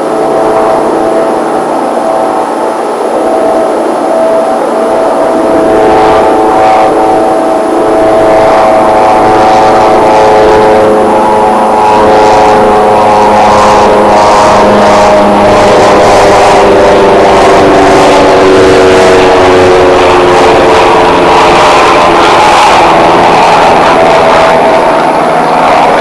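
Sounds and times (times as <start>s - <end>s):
propeller aircraft flying overhead: 0.0s - 26.0s.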